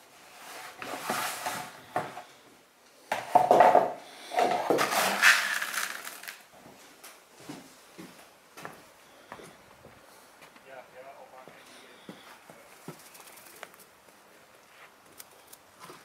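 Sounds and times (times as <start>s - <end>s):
pellets rattling in plastic bucket: 4.4s - 6.4s.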